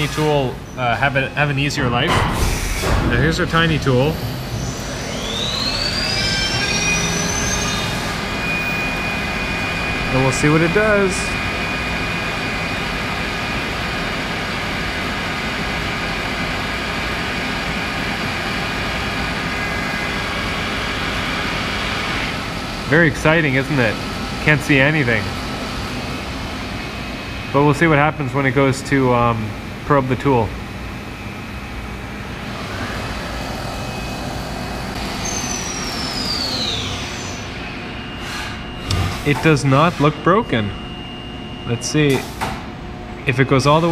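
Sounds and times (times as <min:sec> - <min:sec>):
milling machine high whine: 0:00.0 - 0:43.9
spindle whine falling in pitch: 0:02.7 - 0:13.0.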